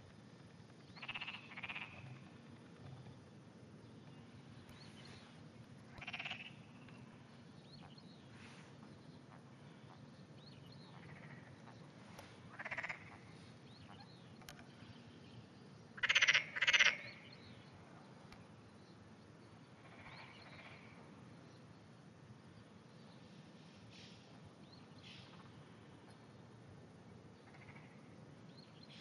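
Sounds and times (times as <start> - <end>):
frogs croaking: 0.0 - 8.4, 9.2 - 22.1, 27.3 - 29.0.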